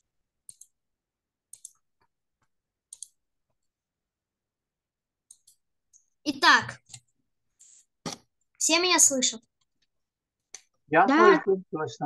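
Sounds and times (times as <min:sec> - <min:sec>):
computer mouse clicks: 0:00.4 - 0:00.8, 0:01.5 - 0:02.1, 0:02.9 - 0:03.2, 0:05.2 - 0:06.0, 0:06.8 - 0:08.3.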